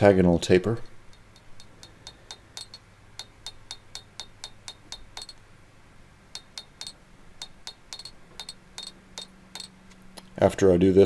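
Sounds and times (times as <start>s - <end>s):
hammer ringing on anvil: 1.1s - 5.4s, 6.4s - 9.8s.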